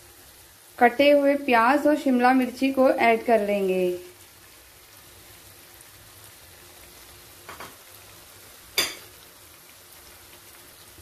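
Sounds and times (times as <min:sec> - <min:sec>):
food sizzling in a pan: 0:00.0 - 0:11.0
kitchenware striking a pan: 0:07.5 - 0:07.8, 0:08.8 - 0:09.2.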